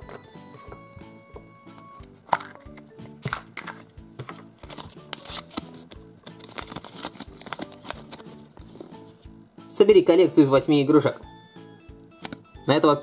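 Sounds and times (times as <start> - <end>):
background music with beat: 0.0 - 6.5, 7.6 - 10.4, 11.0 - 13.0
plastic capsule clicking open: 1.7 - 8.3, 12.2 - 12.5
paper leaflet rustling: 3.2 - 9.2.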